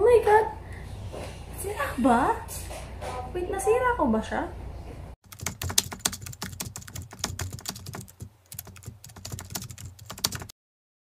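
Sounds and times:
keyboard typing clicks: 5.3 - 10.5.

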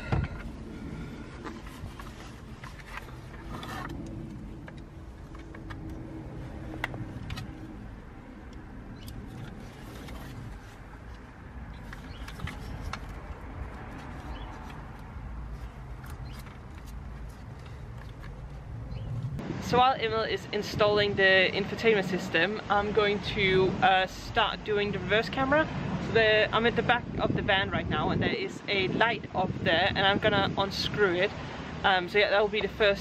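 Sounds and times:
steady low rumble: 0.0 - 25.1.

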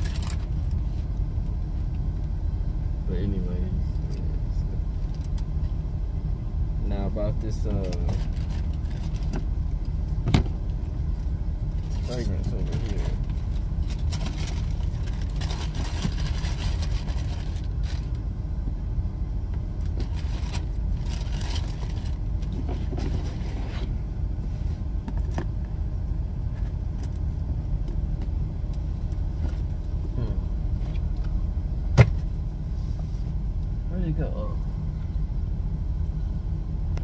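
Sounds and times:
vehicle interior rumble: 0.0 - 37.0
tissue paper and cardboard crinkling: 13.8 - 18.1, 20.0 - 22.2.

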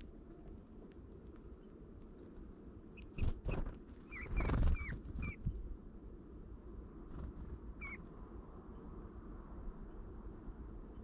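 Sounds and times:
bird pecking and rustling in snow: 0.0 - 5.5.

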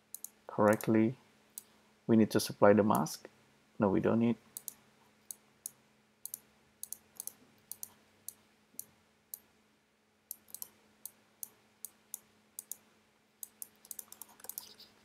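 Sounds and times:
faint low hum: 0.0 - 15.0
computer mouse clicking: 0.1 - 0.9, 4.6 - 8.4, 10.3 - 12.8, 13.4 - 14.9.

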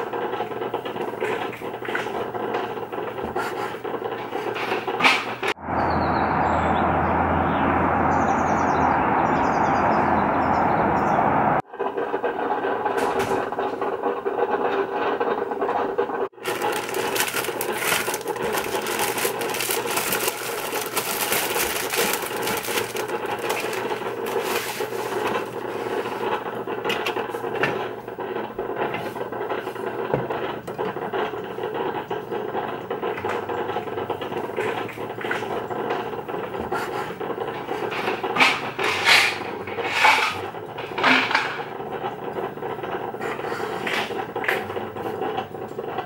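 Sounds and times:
plastic bread bag crinkling: 16.4 - 27.1.

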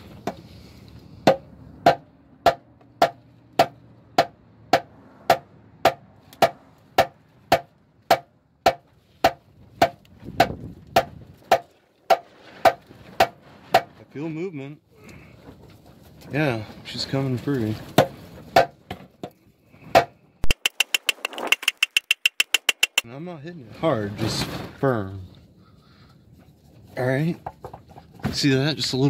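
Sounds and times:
rubber mallet tapping steel pan: 20.4 - 23.0.

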